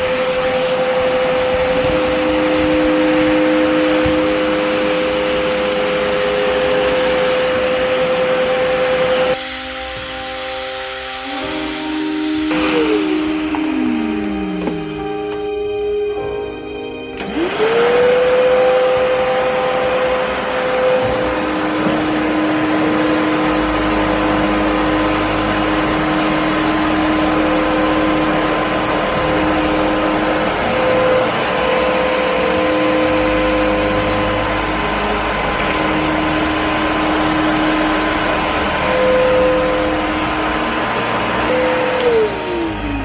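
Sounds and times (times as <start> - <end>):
vacuum cleaner motor whining: 0.0 - 14.8, 17.2 - 43.0.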